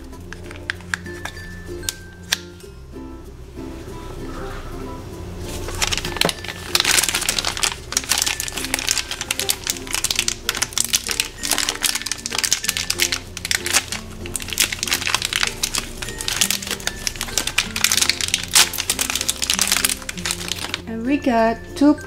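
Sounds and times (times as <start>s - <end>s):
background music: 0.0s - 22.0s
plastic bag crinkling: 5.5s - 20.9s.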